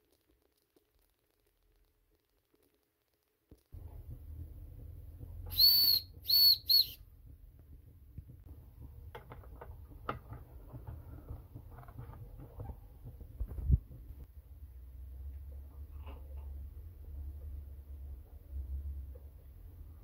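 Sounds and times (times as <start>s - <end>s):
steam whistle blasts: 5.5s - 7.0s
handling clicks and knocks: 7.3s - 14.2s.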